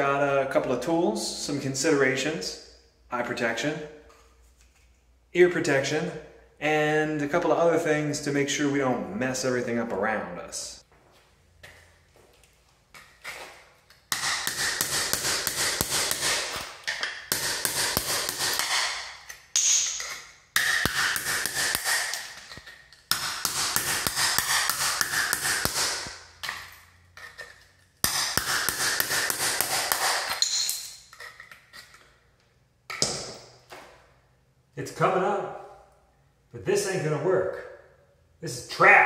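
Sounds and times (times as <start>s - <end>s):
hammer striking steel chisel: 14.1s - 31.3s.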